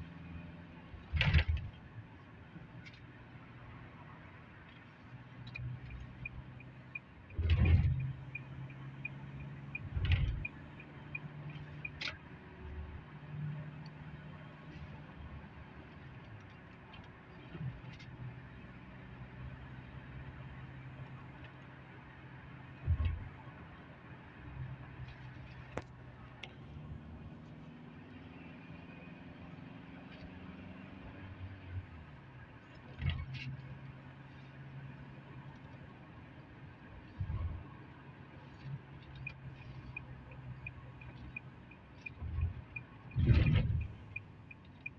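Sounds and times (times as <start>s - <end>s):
engine and road hum: 0.0s - 44.9s
turn signal ticking: 4.7s - 14.0s, 38.6s - 44.9s.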